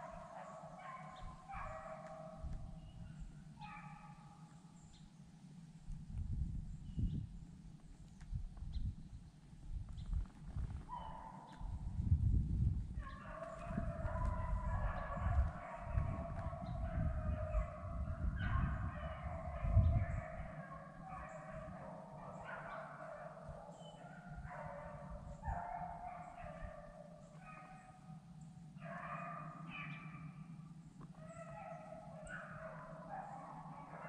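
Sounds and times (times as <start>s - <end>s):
low microphone rumble: 5.8s - 10.9s, 11.6s - 21.1s
dogs baying: 13.0s - 28.1s, 31.1s - 34.0s.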